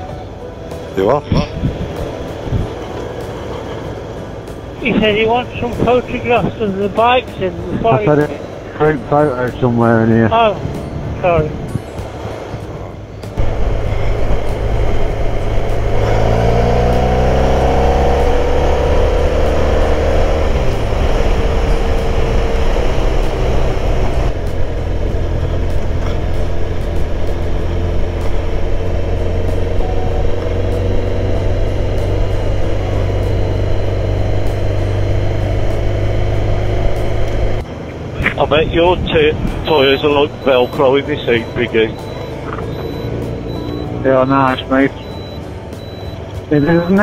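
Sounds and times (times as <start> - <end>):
motorcycle engine: 0.0 - 47.0
road noise: 0.0 - 47.0
wind noise: 1.2 - 2.8, 10.5 - 12.8, 38.2 - 40.4.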